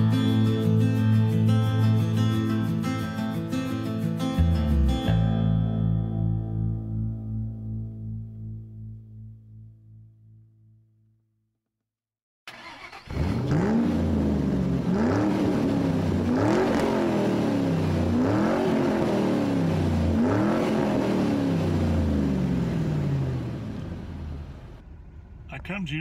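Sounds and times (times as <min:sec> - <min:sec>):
car engine revving: 0:12.5 - 0:26.0.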